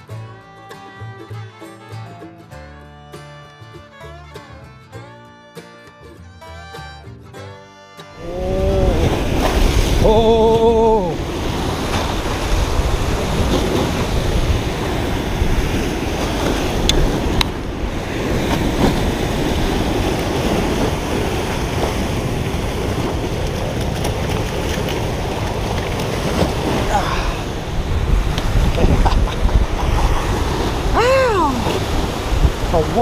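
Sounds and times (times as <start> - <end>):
river water rushing: 5.6 - 33.0
wind buffeting microphone: 8.3 - 33.0.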